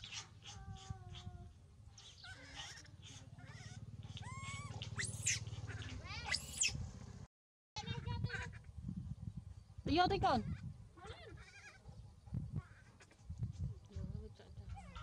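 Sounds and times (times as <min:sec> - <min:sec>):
baby monkey squealing: 0:02.0 - 0:06.8, 0:11.3 - 0:11.8.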